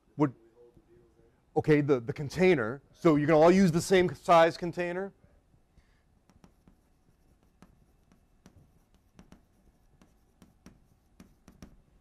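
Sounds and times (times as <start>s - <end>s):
chalk on a blackboard: 6.2s - 12.0s.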